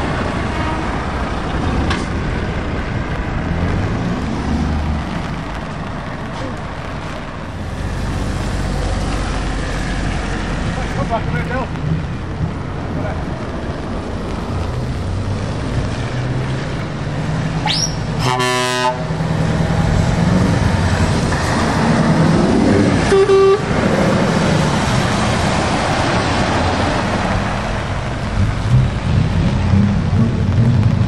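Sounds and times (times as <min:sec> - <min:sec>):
heavy trucks driving on wet road: 0:00.0 - 0:31.0
truck horn blasts: 0:17.7 - 0:19.1, 0:23.0 - 0:23.7.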